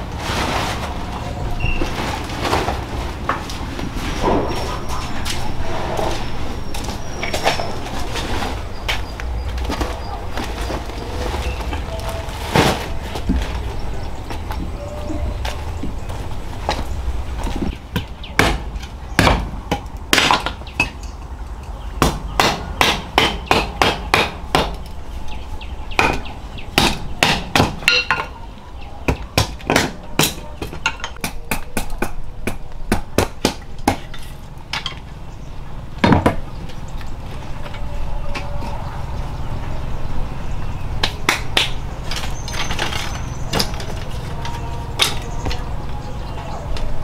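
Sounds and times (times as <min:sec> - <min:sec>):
steady low rumble: 0:00.0 - 0:20.1.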